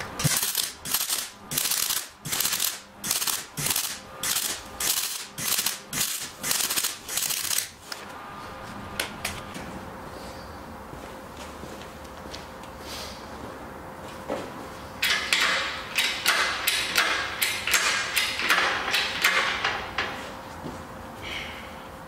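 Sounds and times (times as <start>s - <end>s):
welder crackling bursts: 0.2s - 7.8s.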